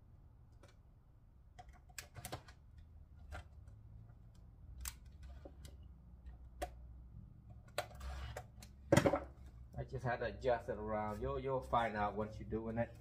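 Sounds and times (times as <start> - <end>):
metal and plastic parts clicking: 1.5 - 6.8.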